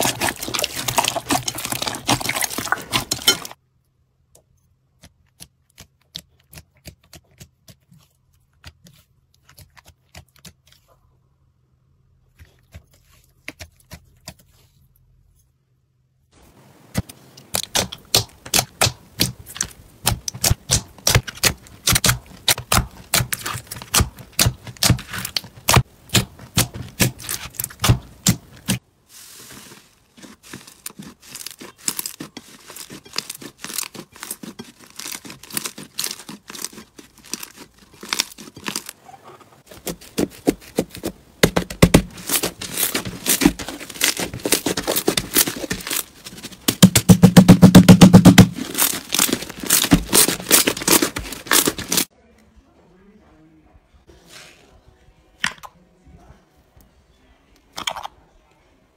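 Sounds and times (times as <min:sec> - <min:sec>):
hands squishing slime: 0:00.0 - 0:03.6, 0:05.0 - 0:10.9, 0:16.9 - 0:39.0, 0:39.6 - 0:52.1.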